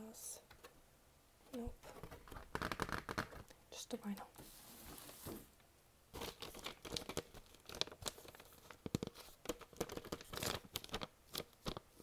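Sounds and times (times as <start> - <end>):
paper sleeve crinkling: 6.2 - 12.0.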